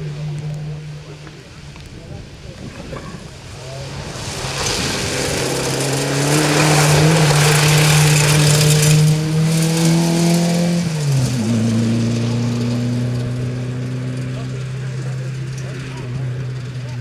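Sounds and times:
rally car engine revving: 0.0s - 17.0s
tyres spraying mud and gravel: 3.3s - 11.7s.

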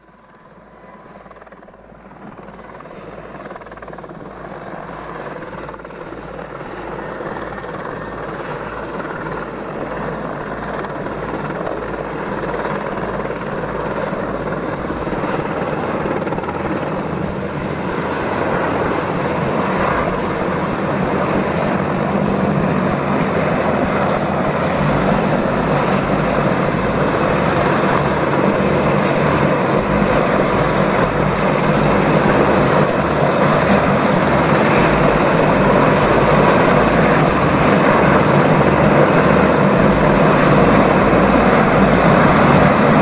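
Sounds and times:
helicopter rotor beat: 0.0s - 43.0s.

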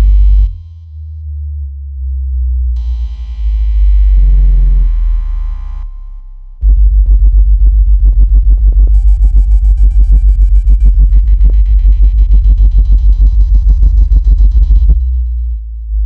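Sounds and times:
pulsing deep bass tone: 0.0s - 16.0s.

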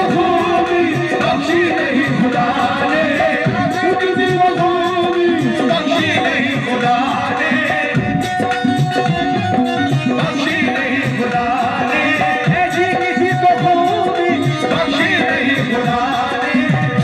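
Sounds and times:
hand drum rhythm: 0.0s - 17.0s
harmonium melody: 0.0s - 17.0s.

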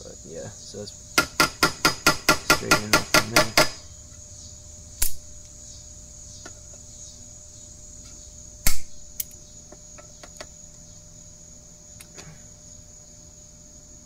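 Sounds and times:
high insect trill: 0.0s - 14.0s
sharp metallic snap: 5.0s - 5.5s, 8.0s - 9.4s.

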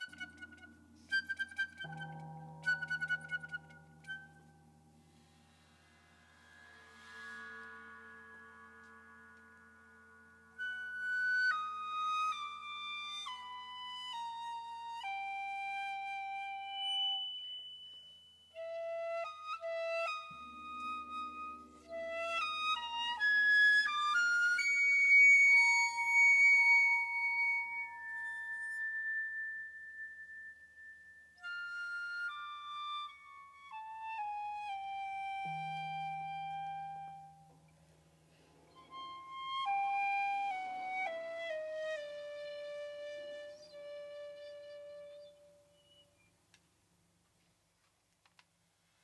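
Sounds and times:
piccolo playing: 0.0s - 4.8s, 7.4s - 37.6s, 38.7s - 46.3s
low sustained percussion resonance: 0.0s - 10.3s.

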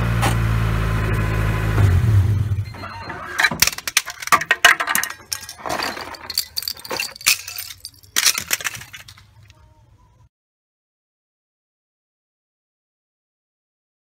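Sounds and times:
plastic pieces clattering on concrete: 3.4s - 9.6s.

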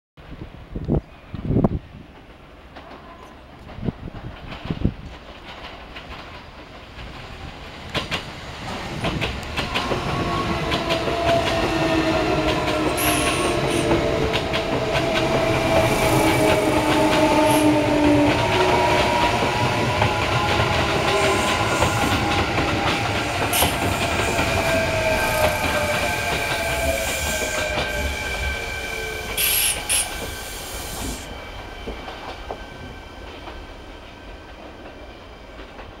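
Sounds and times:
wheels rumbling on rail joints: 0.2s - 30.4s
electric train motors whining: 9.4s - 31.4s
high-pitched train squeals: 9.6s - 33.3s.

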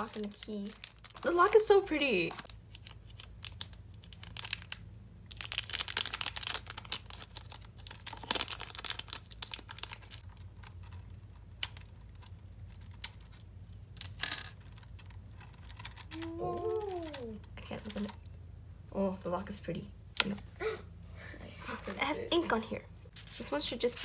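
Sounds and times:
plastic packaging crinkling: 0.0s - 17.3s.

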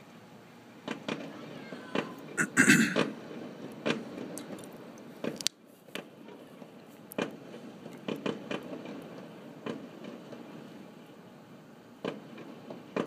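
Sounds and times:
fireworks banging: 0.8s - 4.4s, 6.0s - 11.3s, 12.0s - 13.0s.

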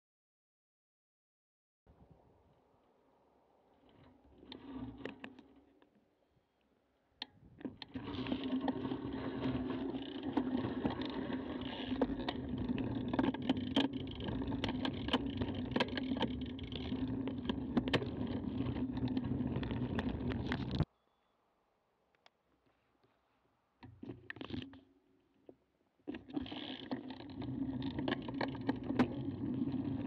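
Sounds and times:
rattling ticks: 7.7s - 20.8s, 26.1s - 30.0s
bicycle sharp clicks: 7.9s - 20.9s
tyres rolling on road: 8.0s - 20.5s.

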